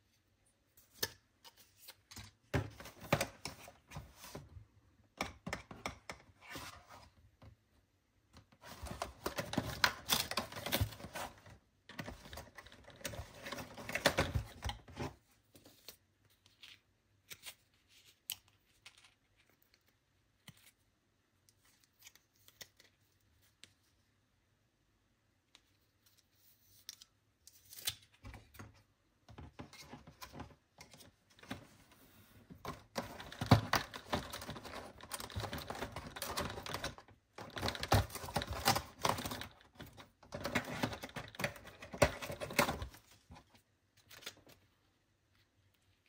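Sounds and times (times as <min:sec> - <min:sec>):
cardboard rustling and crinkling: 0:08.4 - 0:16.8, 0:29.4 - 0:44.7.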